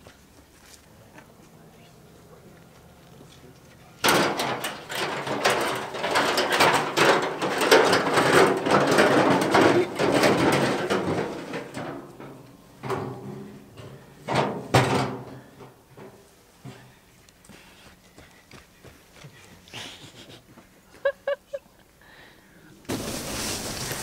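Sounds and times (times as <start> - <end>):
metal drum rolling on ground: 4.0 - 16.8.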